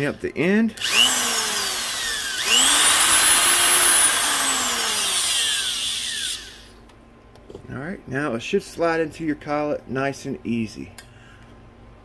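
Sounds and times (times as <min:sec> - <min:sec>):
rotary tool grinding metal cable: 0:00.8 - 0:06.7.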